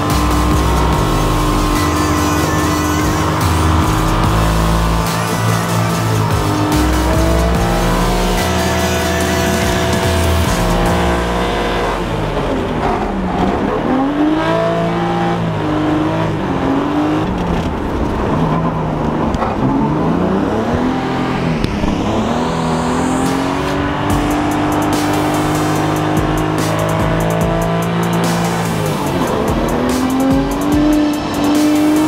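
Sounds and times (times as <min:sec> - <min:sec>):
high turbo whistle: 0:00.0 - 0:11.2
car engine revving: 0:00.0 - 0:32.0.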